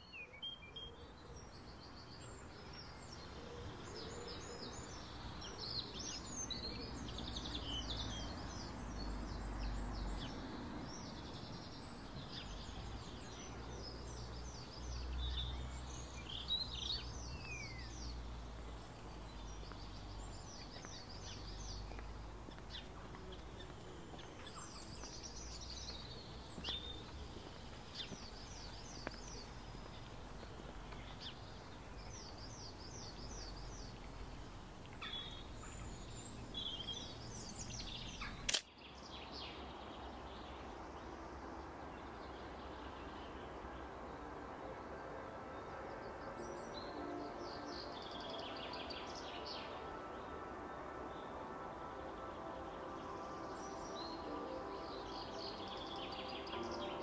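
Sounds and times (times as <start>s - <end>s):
small birds chirping: 0.0s - 43.8s.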